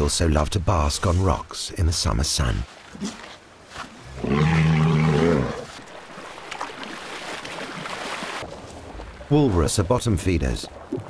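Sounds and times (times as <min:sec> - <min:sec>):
walrus bellowing: 0:04.1 - 0:05.8.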